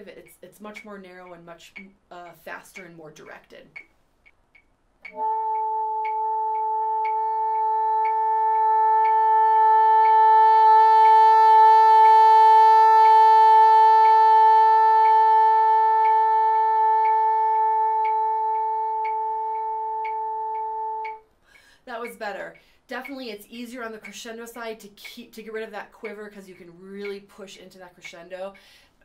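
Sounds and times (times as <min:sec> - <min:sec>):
faint ticking: 0:00.0 - 0:29.0
bassoon long tone: 0:05.1 - 0:21.2.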